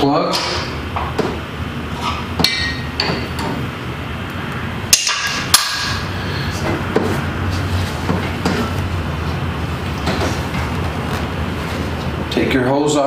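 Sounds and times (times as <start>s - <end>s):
metal tool clanking on steel frame: 2.1s - 3.6s.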